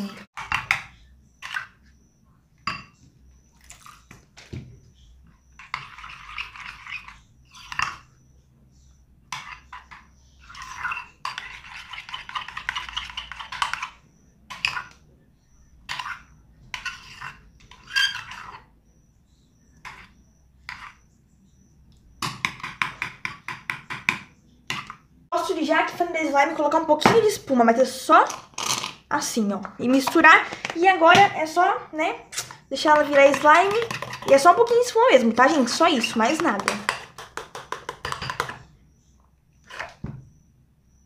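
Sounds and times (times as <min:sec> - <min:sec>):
spoon scraping slime in bowl: 0:05.4 - 0:08.3, 0:09.3 - 0:15.0, 0:15.8 - 0:19.1, 0:19.8 - 0:21.7, 0:32.3 - 0:38.6, 0:39.6 - 0:40.1
spoon tapping bowl: 0:36.3 - 0:38.6.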